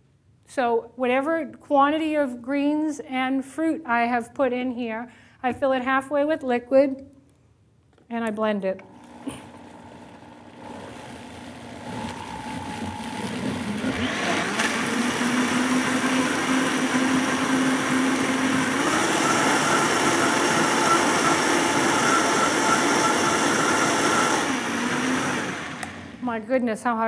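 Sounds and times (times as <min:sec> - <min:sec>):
blender running: 0:08.8 - 0:26.2.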